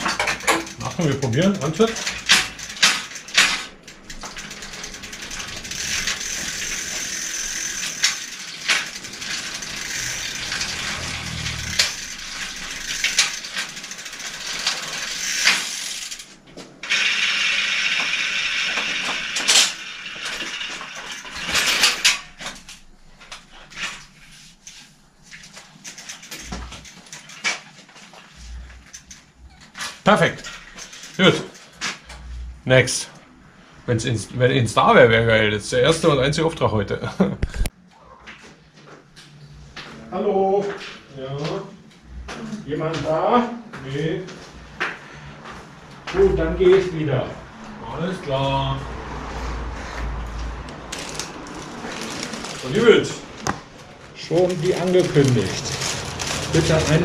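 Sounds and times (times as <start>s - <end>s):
bicycle hub and chain whirring: 0.0s - 33.0s, 47.7s - 57.0s.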